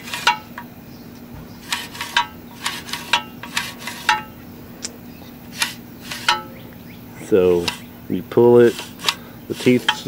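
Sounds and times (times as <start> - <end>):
recoil starter metallic clicks: 0.0 - 6.8, 7.4 - 7.9, 8.7 - 10.0.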